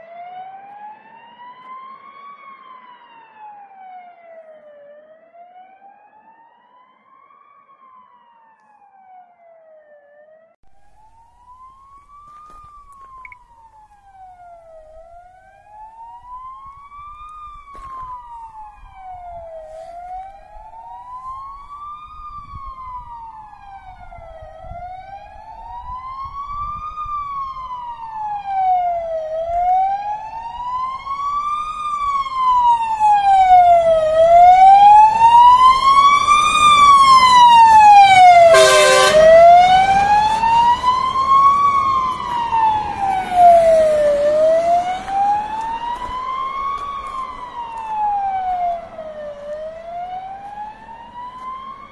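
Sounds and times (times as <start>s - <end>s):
fire engine siren wailing: 0.0s - 51.9s
engine and road rumble: 10.6s - 51.9s.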